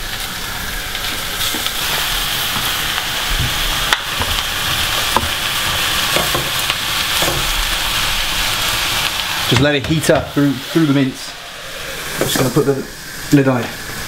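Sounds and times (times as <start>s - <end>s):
vegetables sizzling in saucepan: 0.0s - 14.0s.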